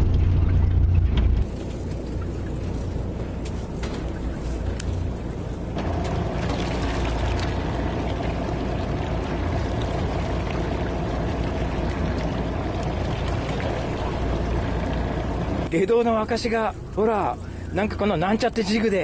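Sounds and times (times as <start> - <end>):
boat engine running: 0.0 - 1.5, 5.2 - 15.9
water washing against hull: 0.0 - 15.7
steady hum: 0.0 - 19.0.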